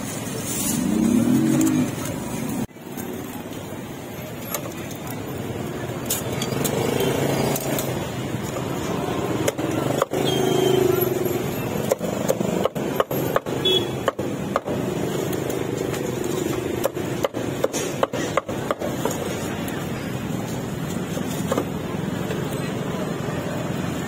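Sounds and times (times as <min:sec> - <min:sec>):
passing motorbikes: 0:00.0 - 0:03.8, 0:04.7 - 0:13.0.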